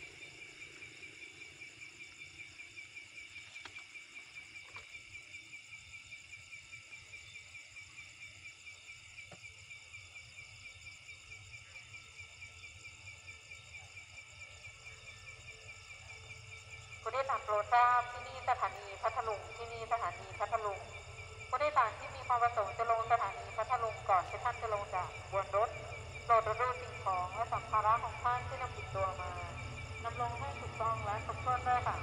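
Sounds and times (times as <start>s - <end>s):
night insects chirping: 0.0s - 32.0s
faint low rumble: 17.0s - 32.0s.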